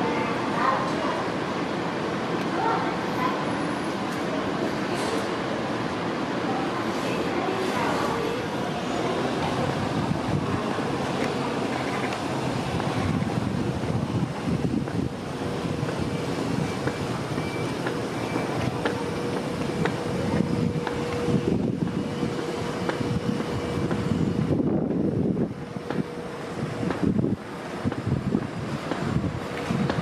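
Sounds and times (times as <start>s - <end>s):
wind rumbling on microphone: 9.4s - 30.0s.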